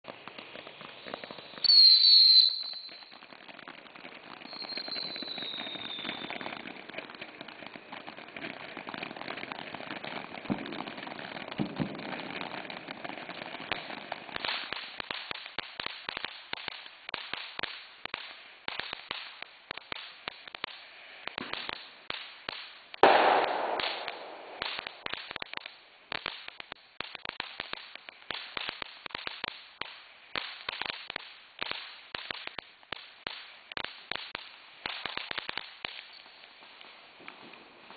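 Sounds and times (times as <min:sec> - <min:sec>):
firework crackling: 0:00.0 - 0:37.9
firework sparks hissing: 0:00.1 - 0:37.9
firework whistle: 0:00.8 - 0:03.3, 0:04.3 - 0:06.8
firework pop: 0:11.5 - 0:12.2, 0:23.0 - 0:25.6.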